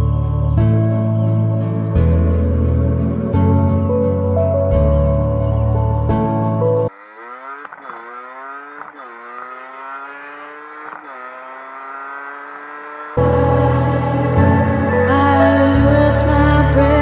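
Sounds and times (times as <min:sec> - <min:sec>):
two-stroke engine accelerating: 0:06.6 - 0:17.0.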